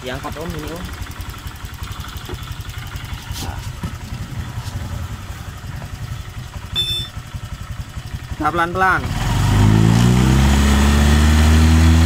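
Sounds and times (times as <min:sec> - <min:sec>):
scooter engine idling: 0:00.0 - 0:09.1.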